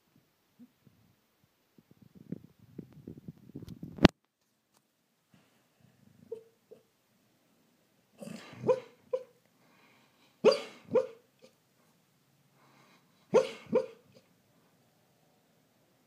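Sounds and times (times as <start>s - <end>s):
sleeping dog woofing: 5.9s - 6.9s, 8.2s - 9.4s, 10.4s - 11.6s, 13.3s - 14.3s.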